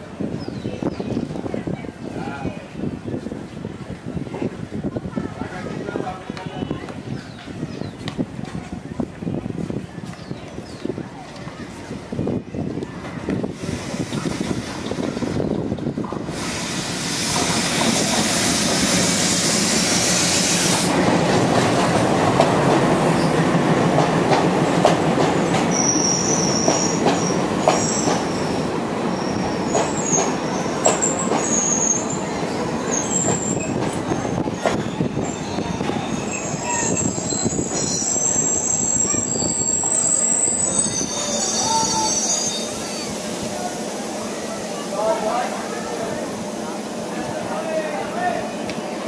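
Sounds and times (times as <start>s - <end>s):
diesel locomotive rushing past: 13.1s - 49.0s
wheel and brake squeals: 29.2s - 32.2s, 34.7s - 43.2s.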